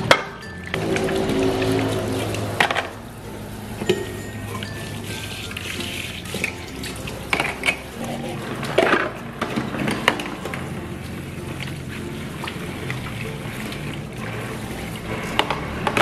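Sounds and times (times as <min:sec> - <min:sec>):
tap water running into sink: 0:00.7 - 0:16.0
plastic plates clattering: 0:06.3 - 0:10.7, 0:15.3 - 0:16.0.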